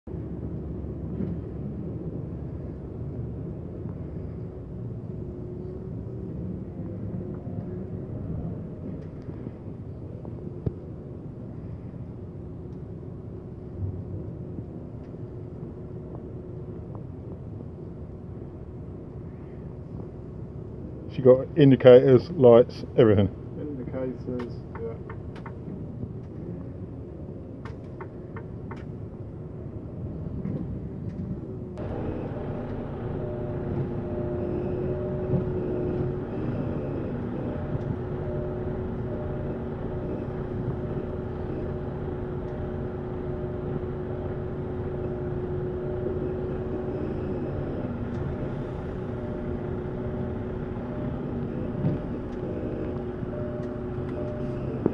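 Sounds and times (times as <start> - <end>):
steady whine: 31.8 - 54.9
truck engine running: 31.8 - 54.9.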